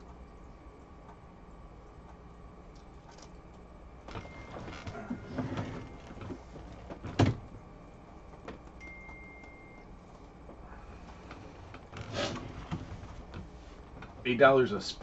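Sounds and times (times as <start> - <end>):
objects rustling and clattering: 4.1 - 7.5, 11.0 - 14.3.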